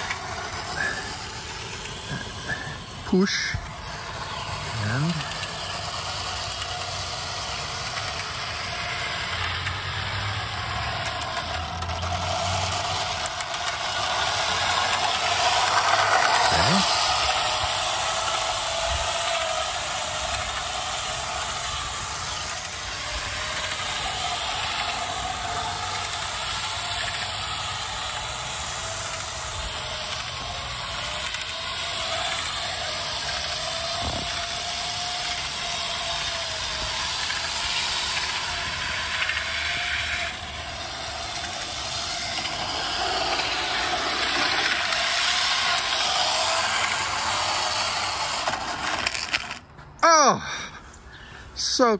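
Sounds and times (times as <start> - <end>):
model train whine: 0.0 - 51.9.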